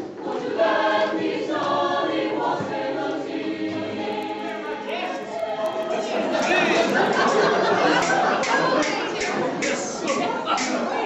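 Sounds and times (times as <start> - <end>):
choir singing in harmony: 0.0 - 11.0.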